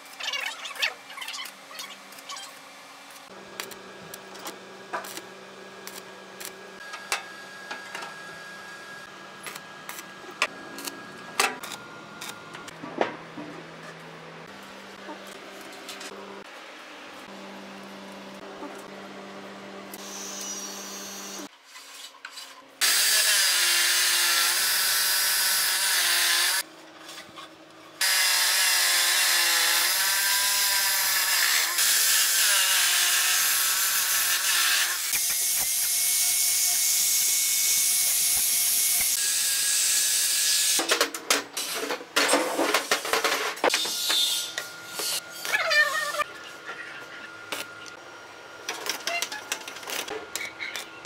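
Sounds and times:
cut-off saw grinding metal: 22.8 - 26.6, 28.0 - 40.8.

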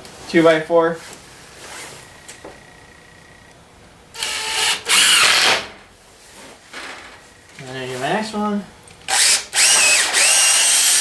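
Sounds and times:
cordless drill driving screw: 4.2 - 5.7, 9.1 - 11.0.

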